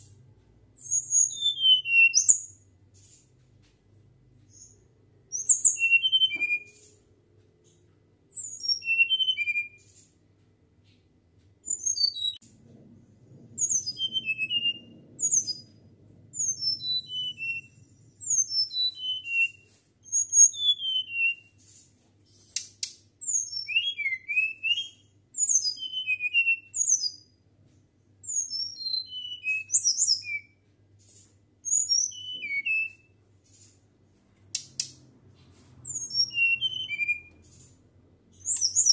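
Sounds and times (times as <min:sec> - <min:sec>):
bird singing whistled notes: 0:00.8 - 0:02.6, 0:04.5 - 0:06.8, 0:08.4 - 0:09.8, 0:11.6 - 0:12.4, 0:13.6 - 0:15.8, 0:16.4 - 0:21.6, 0:23.2 - 0:27.4, 0:28.2 - 0:30.6, 0:31.6 - 0:33.1, 0:35.8 - 0:37.4, 0:38.3 - 0:38.9.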